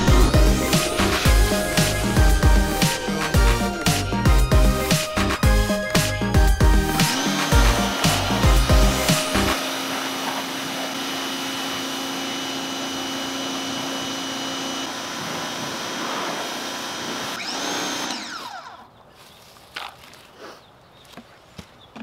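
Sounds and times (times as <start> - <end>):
pressure washer spraying water: 0.0 - 14.3, 15.2 - 17.3.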